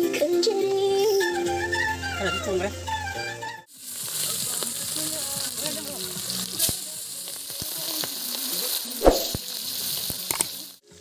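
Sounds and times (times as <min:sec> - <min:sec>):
food sizzling in hot oil: 0:03.7 - 0:11.0
sharp knock: 0:09.0 - 0:09.4.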